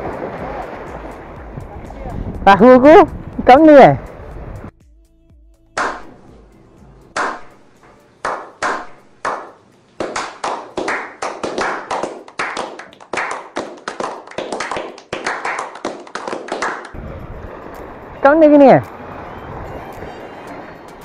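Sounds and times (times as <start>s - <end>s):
men clapping: 8.2s - 17.0s.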